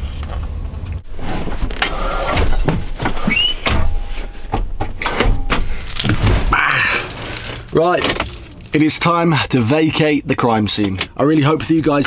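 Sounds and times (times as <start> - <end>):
short rising squeak: 3.2 - 3.7.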